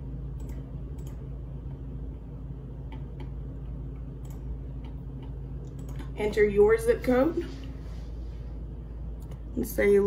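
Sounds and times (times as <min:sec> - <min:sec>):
steady low hum: 0:00.0 - 0:10.0
computer mouse clicks: 0:00.4 - 0:01.2, 0:04.2 - 0:06.1, 0:09.2 - 0:09.4.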